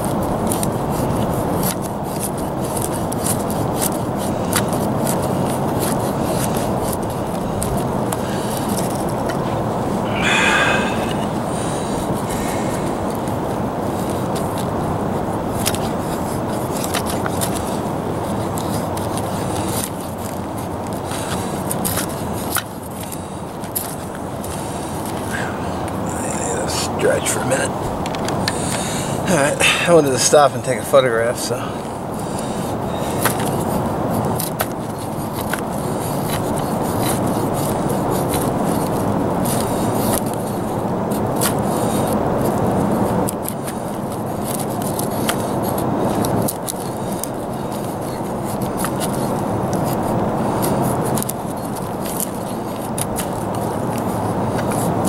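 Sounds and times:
knife scraping wood: 0.0s - 14.8s, 15.5s - 30.8s, 31.8s - 55.0s
steady rushing background noise: 0.0s - 55.0s
low rushing noise: 7.8s - 15.4s, 23.4s - 33.5s.

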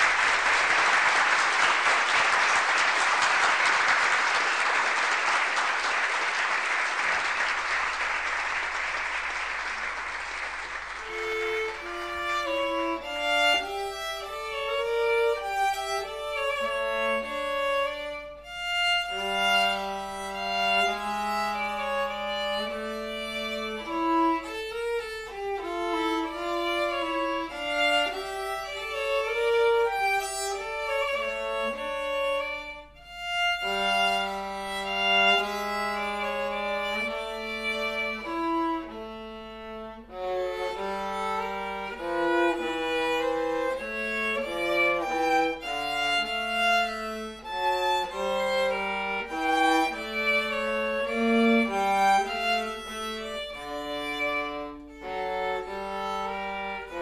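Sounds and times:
violin duet: 10.7s - 57.0s.

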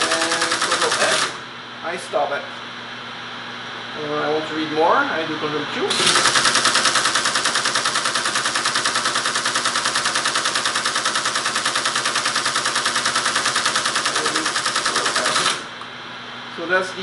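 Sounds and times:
teletype machine clattering: 0.0s - 1.4s, 5.9s - 15.7s.

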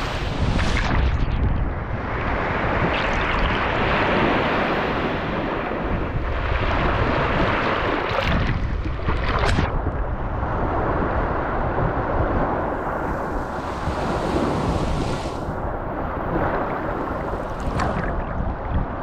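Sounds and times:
water washing over microphone: 0.0s - 1.8s, 2.6s - 3.9s, 7.2s - 10.2s, 16.6s - 19.0s
waves breaking on a beach: 0.0s - 19.0s.

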